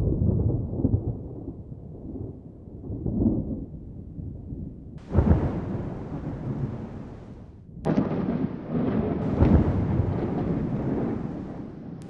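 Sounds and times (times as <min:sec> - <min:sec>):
rolling thunder rumble: 0:00.0 - 0:12.0
loud thunderclap: 0:05.0 - 0:12.0.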